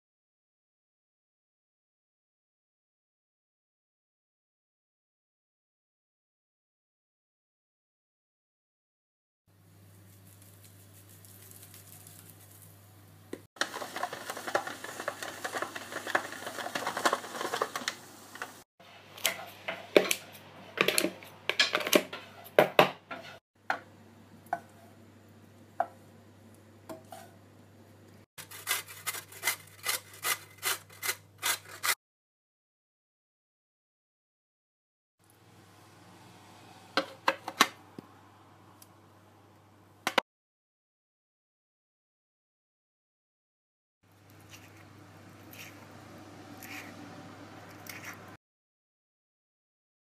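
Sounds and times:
grating on metal box grater: 0:28.4 - 0:32.0.

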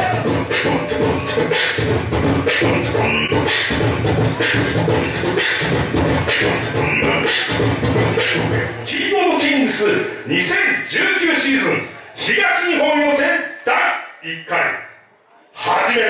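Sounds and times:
beatboxing into a microphone: 0:00.0 - 0:11.1.

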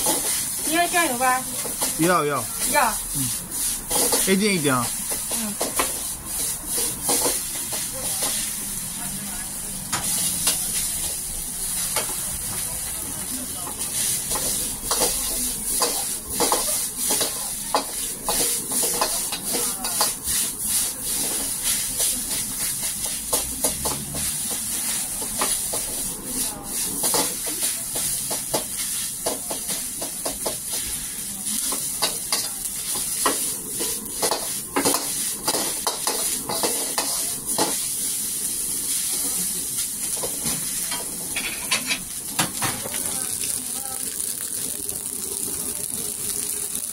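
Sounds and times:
food sizzling: 0:00.0 - 0:46.9
metal ladle scraping a wok: 0:41.3 - 0:42.1.

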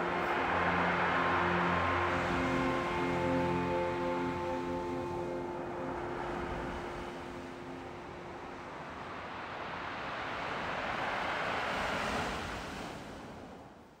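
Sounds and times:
held musical notes: 0:00.0 - 0:09.3
sea surf rushing in: 0:00.0 - 0:13.8.

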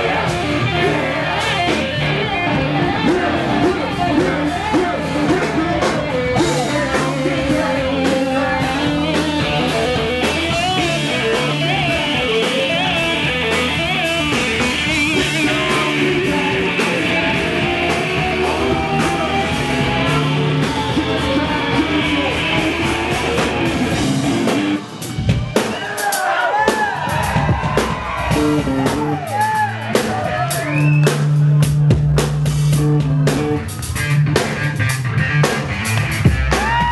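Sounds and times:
rapper's voice on microphone: 0:00.0 - 0:13.7, 0:14.9 - 0:23.6
funk band playing: 0:00.0 - 0:36.9.

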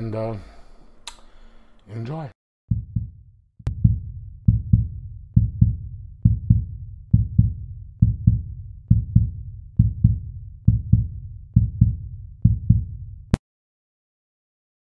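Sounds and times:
deep heartbeat-like thumps: 0:02.7 - 0:13.4.

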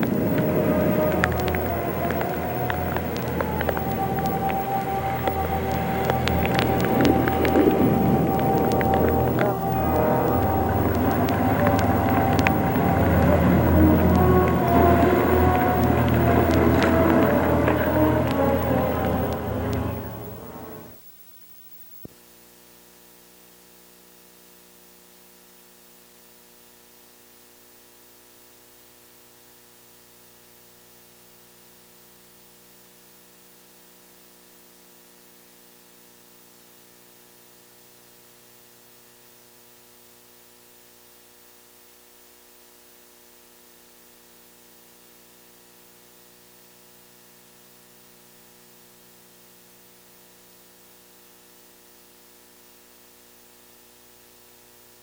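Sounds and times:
electrical hum: 0:00.0 - 0:21.0
tape hiss: 0:00.0 - 0:55.0.

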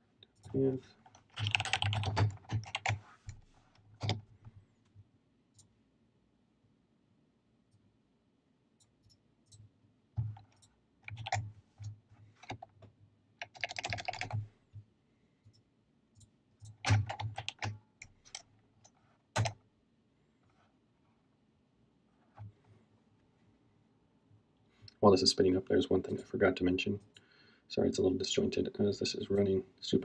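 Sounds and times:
computer keyboard typing: 0:00.4 - 0:03.0, 0:04.0 - 0:04.2, 0:10.2 - 0:11.5, 0:13.4 - 0:14.4, 0:16.6 - 0:18.5, 0:19.4 - 0:19.6.

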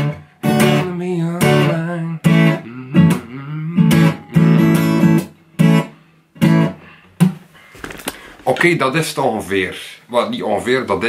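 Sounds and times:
acoustic guitar strumming: 0:00.0 - 0:07.3.

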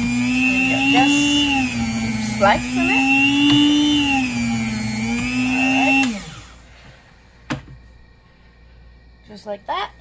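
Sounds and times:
meat slicer motor humming: 0:00.0 - 0:06.9.

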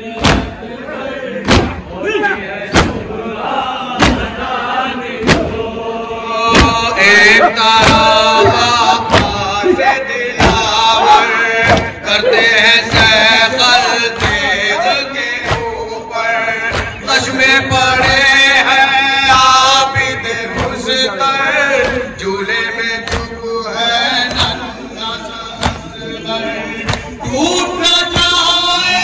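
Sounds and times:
men chanting in unison: 0:00.0 - 0:29.0
hands slapping chests: 0:14.1 - 0:14.6, 0:15.4 - 0:15.8, 0:16.7 - 0:17.0, 0:20.5 - 0:20.9, 0:21.8 - 0:22.1, 0:23.0 - 0:23.4, 0:25.6 - 0:25.9, 0:26.8 - 0:27.2.

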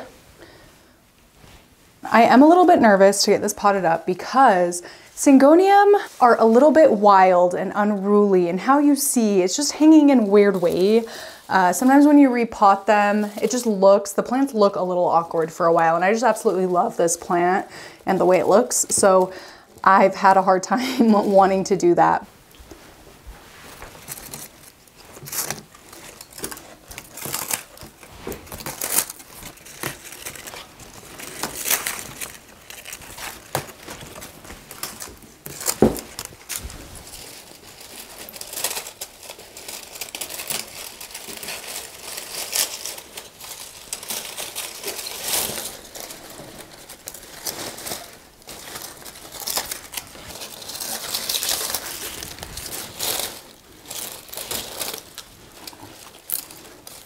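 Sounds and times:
foliage rustling: 0:22.7 - 0:57.0
dry leaves crinkling and snapping: 0:23.8 - 0:57.0.

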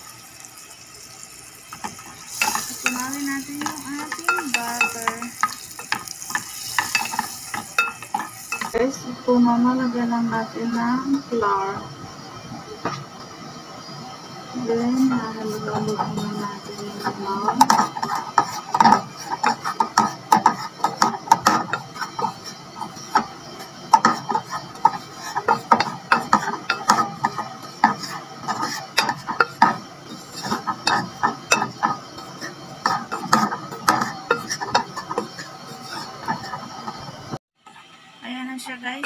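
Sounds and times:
wooden spatula scraping metal pot: 0:01.8 - 0:08.8, 0:14.9 - 0:37.1.

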